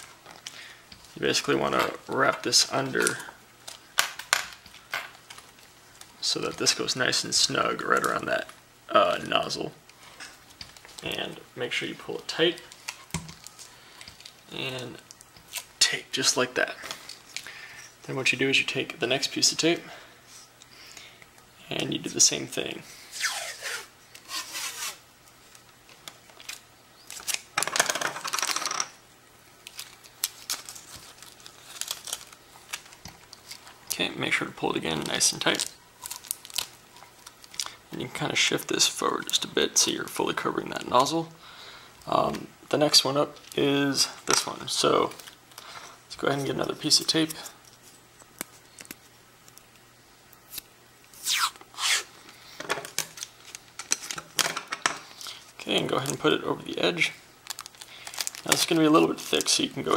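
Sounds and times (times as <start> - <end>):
tape crackling and clicks: 0.0 - 7.0, 9.2 - 11.4, 12.2 - 16.0, 23.2 - 28.6, 29.6 - 34.1, 34.7 - 37.8, 42.0 - 56.3, 57.4 - 59.9
tape ripping off roll: 23.1 - 25.0, 51.2 - 52.1.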